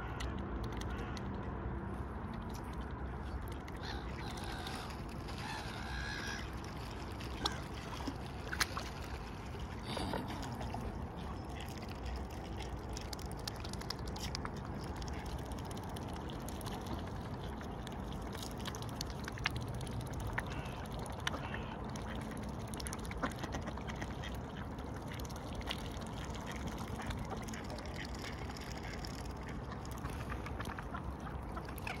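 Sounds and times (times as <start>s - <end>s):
low background rumble: 0.0s - 32.0s
waterfowl honking and quacking: 3.7s - 6.8s, 20.4s - 22.1s.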